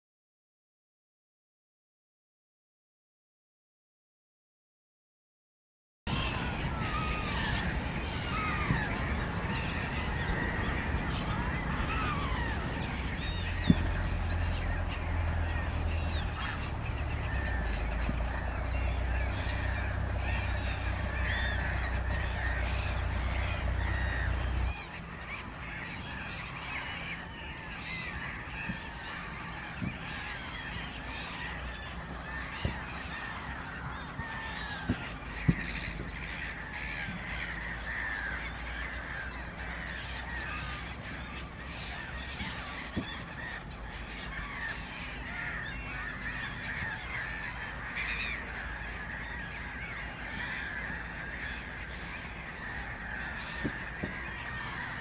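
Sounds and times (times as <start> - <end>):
waterbirds calling: 6.1 - 55.0.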